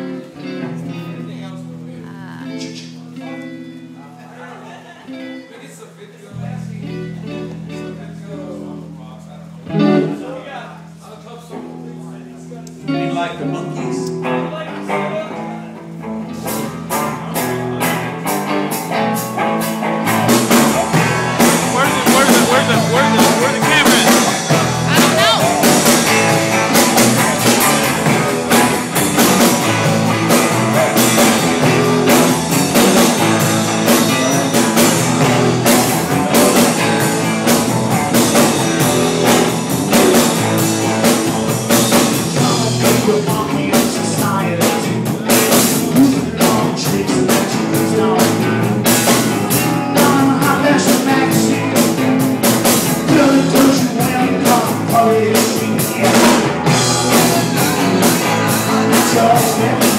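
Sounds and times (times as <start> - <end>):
electric guitars: 0.0 - 59.9
drum kit beat: 9.7 - 10.2, 16.0 - 59.9
person singing: 20.8 - 36.8, 39.9 - 52.3, 52.9 - 59.9.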